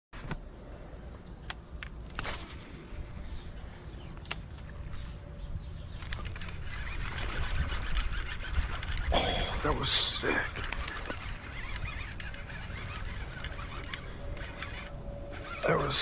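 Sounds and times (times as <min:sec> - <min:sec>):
outdoor background noise: 0:00.1 - 0:16.0
insects buzzing and chirping: 0:00.2 - 0:16.0
sharp clicks: 0:01.4 - 0:02.5, 0:04.0 - 0:05.0, 0:05.9 - 0:16.0.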